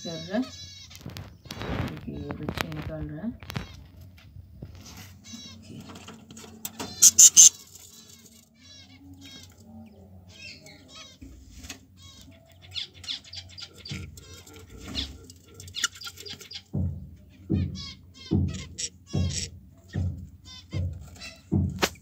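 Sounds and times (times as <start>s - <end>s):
budgerigars chirping: 0.0s - 3.9s, 6.8s - 11.4s, 12.0s - 21.6s
dull low thumps: 16.7s - 22.0s.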